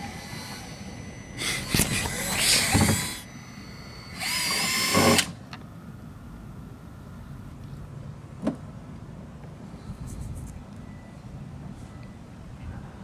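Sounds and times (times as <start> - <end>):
cordless drill whining: 0.0 - 5.4.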